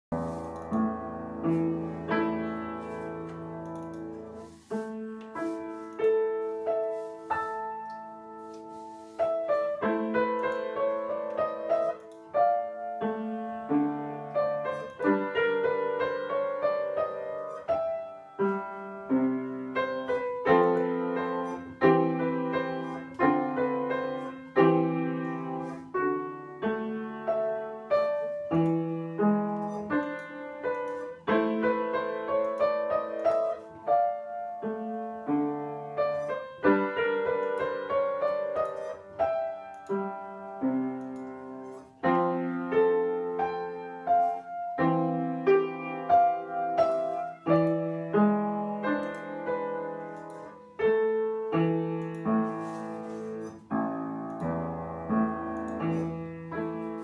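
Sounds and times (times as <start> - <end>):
upright piano playing: 0.0 - 57.0.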